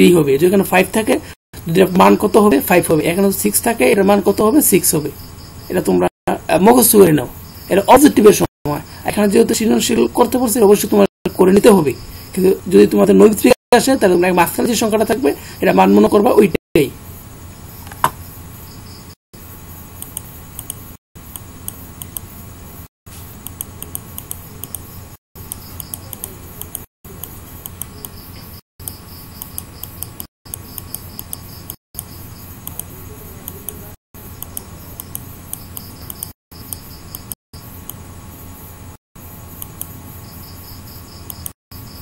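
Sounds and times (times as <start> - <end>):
mouse scroll wheel clicking: 20.0 - 22.3, 23.4 - 24.9, 25.5 - 28.2, 28.8 - 33.8, 34.4 - 38.0, 39.6 - 39.9.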